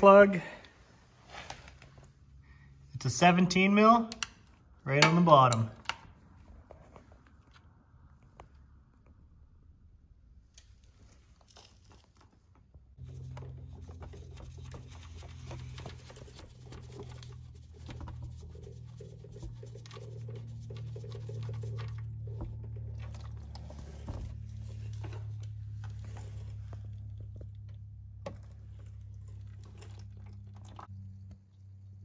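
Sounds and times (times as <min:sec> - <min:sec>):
steady low hum: 0:12.9 - 0:32.0.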